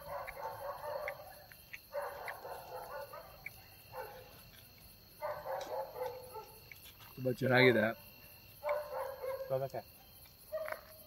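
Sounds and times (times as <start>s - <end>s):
dogs barking faintly: 0.0s - 7.2s, 8.5s - 11.0s
high insect drone: 0.0s - 11.0s.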